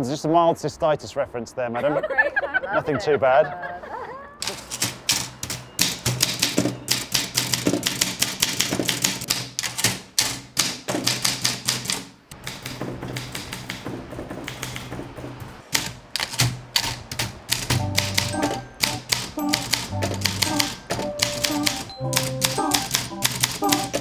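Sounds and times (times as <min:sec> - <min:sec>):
typewriter keystrokes clacking: 0:04.4 - 0:15.0, 0:15.7 - 0:24.0.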